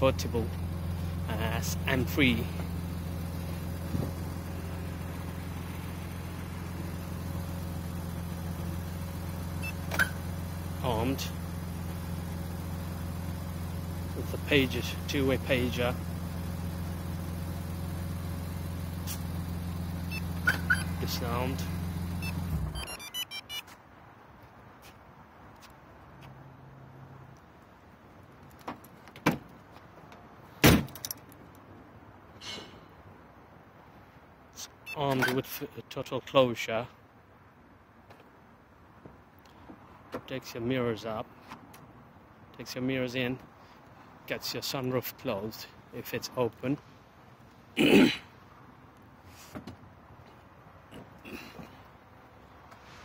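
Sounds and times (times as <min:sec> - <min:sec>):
vehicle engine idling: 0:00.0 - 0:23.2.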